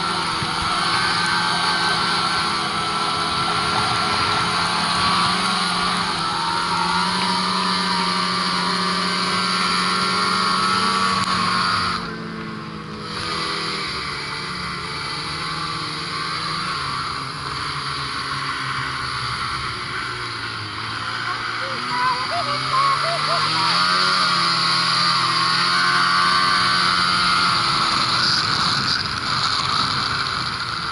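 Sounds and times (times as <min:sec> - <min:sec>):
snowmobile engine running: 0:00.0 - 0:30.9.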